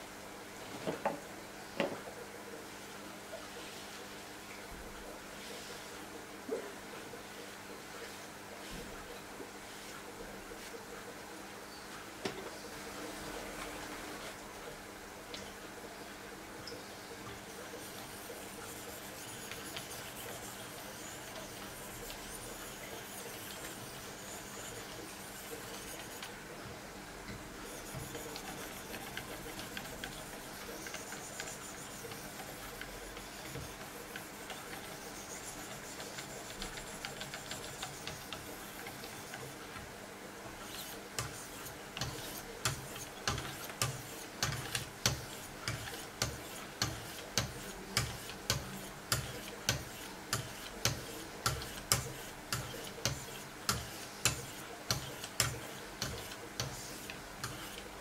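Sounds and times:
sharp ticks of sharpening strokes: 40.7 - 57.8.

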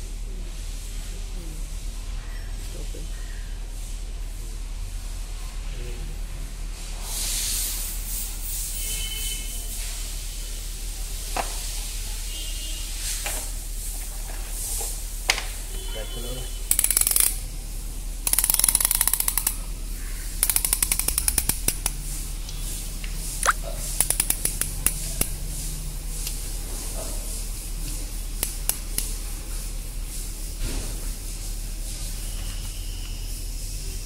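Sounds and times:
ratchet fast clicking: 16.7 - 17.5, 18.2 - 22.1, 23.4 - 25.4, 28.4 - 29.1
single ratchet clicks: 16.7 - 17.5, 18.2 - 19.7, 20.3 - 22.0, 23.4 - 25.4, 28.4 - 29.1.

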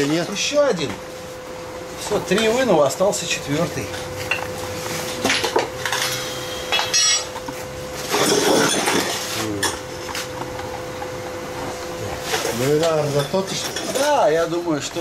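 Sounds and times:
steady hum: 0.0 - 15.0
metal tools clanking: 5.2 - 7.4, 8.0 - 9.9, 12.2 - 14.5.

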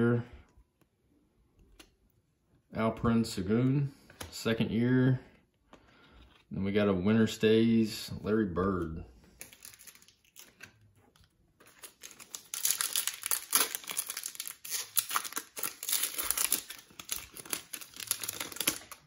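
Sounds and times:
faint handling sounds: 5.2 - 6.7
foil wrapper crinkling and tearing: 9.4 - 19.0.

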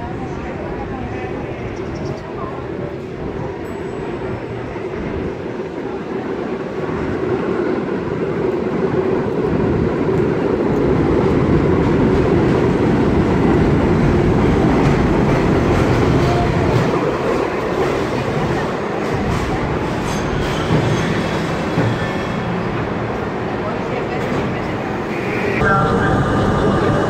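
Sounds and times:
subway train rumbling: 0.0 - 27.0.

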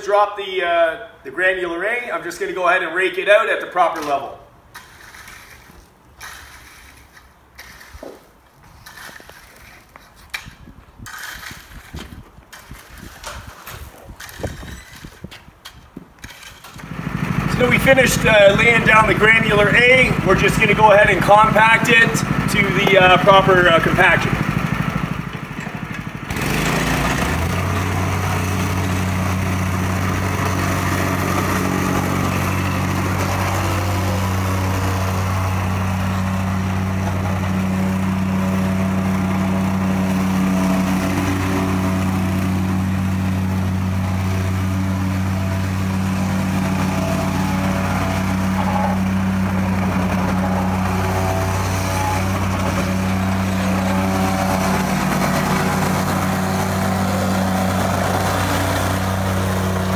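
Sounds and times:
plate compactor engine humming: 16.3 - 59.9.

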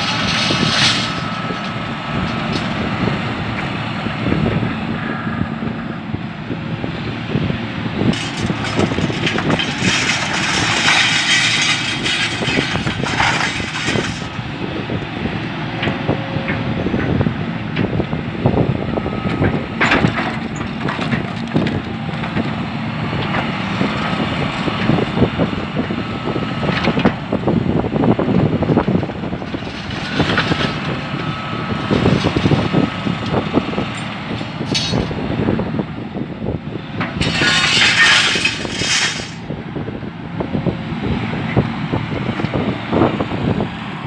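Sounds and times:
scrap metal clanking and scraping: 0.0 - 2.8, 8.1 - 14.5, 19.8 - 22.6, 29.4 - 31.0, 31.9 - 35.2, 37.0 - 39.5
excavator diesel engine: 0.0 - 44.0.

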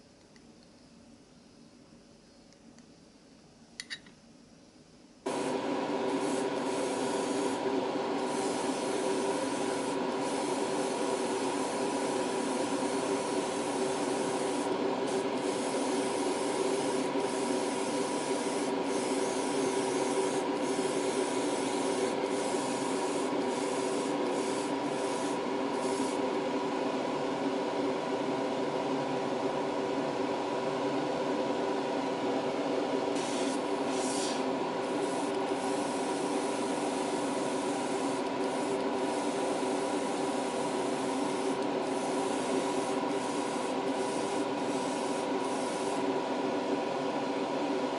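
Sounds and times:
air compressor humming: 5.2 - 47.9
airbrush spraying hiss: 5.3 - 26.4, 33.1 - 46.2.

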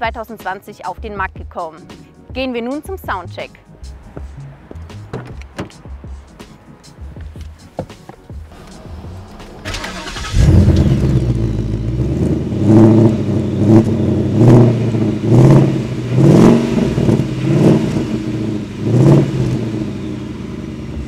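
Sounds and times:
car engine starting and revving: 8.5 - 21.0.

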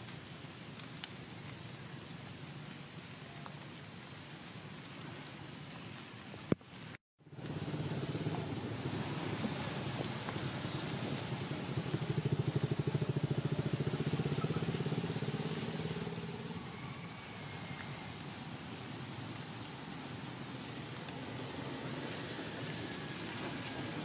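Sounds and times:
small engine running: 11.0 - 16.1.

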